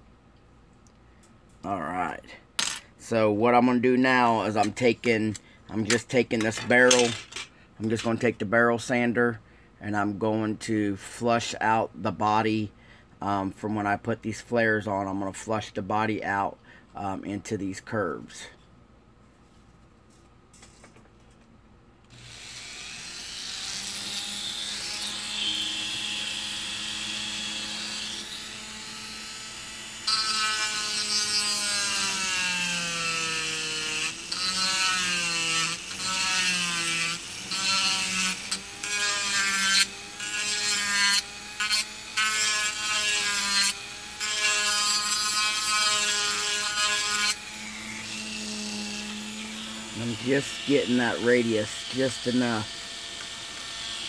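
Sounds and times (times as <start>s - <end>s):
rotary tool motor whine: 22.1s - 30.8s.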